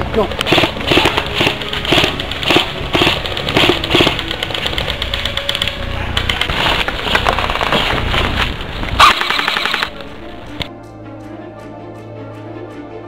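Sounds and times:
background music: 0.0s - 13.0s
airsoft rifles firing bursts: 0.4s - 8.0s, 9.0s - 10.0s.

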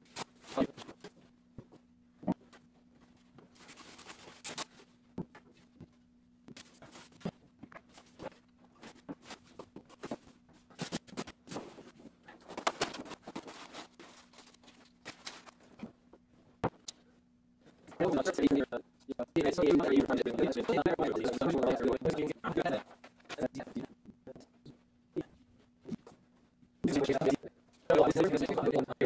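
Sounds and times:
plastic and foam rustling: 0.0s - 16.8s.

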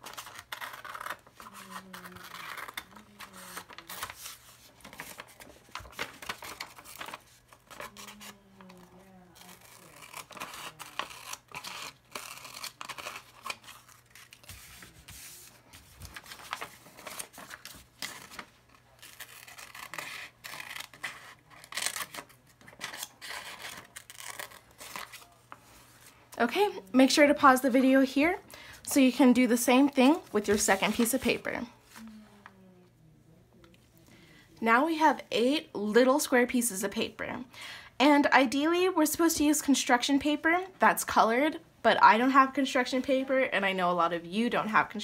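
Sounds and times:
scissors snipping paper: 0.0s - 15.2s, 19.0s - 25.3s
paper rustling: 0.0s - 26.3s, 29.8s - 32.1s.

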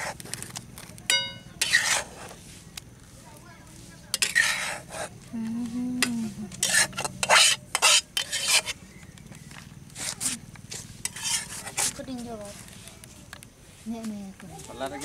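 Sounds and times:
metal spatula scraping wok: 0.0s - 0.4s, 1.0s - 2.6s, 4.1s - 5.2s, 6.0s - 8.9s, 10.0s - 12.8s.

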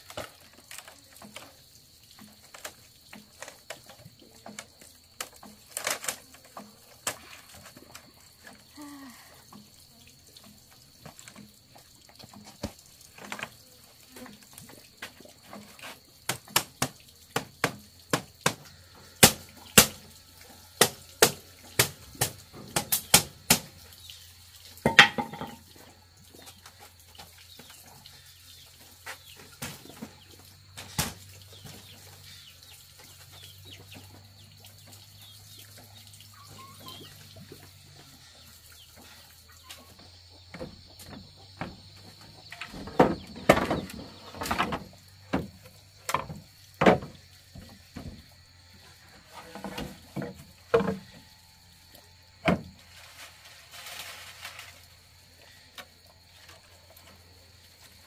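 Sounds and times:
blade knocking on bamboo: 16.3s - 18.6s.

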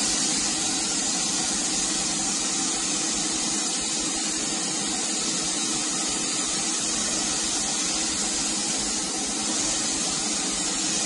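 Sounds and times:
spray gun hissing: 0.0s - 11.0s.

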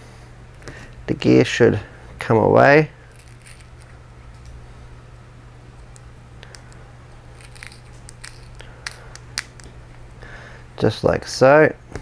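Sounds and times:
steady low hum: 0.0s - 12.0s
small metal parts clicking: 3.1s - 4.5s, 7.3s - 9.7s.

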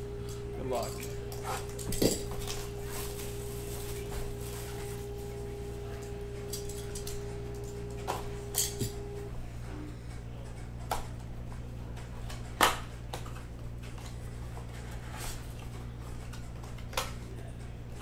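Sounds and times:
low hum: 0.0s - 9.9s.

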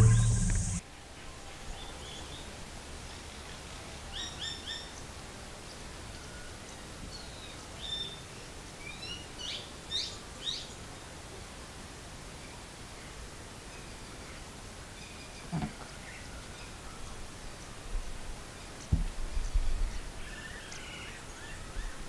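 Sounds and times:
birds chirping: 0.0s - 0.8s
steady background hiss: 0.0s - 22.0s.

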